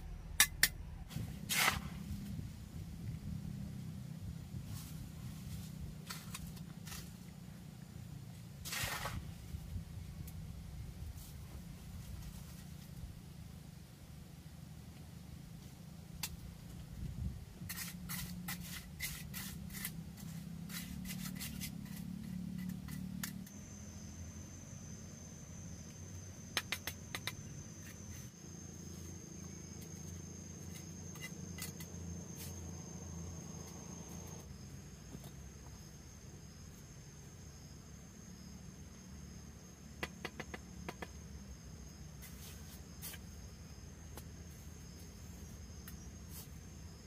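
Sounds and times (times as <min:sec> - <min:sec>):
insects droning: 0:00.0 - 0:47.0
trowel tapping and scraping: 0:26.6 - 0:28.0.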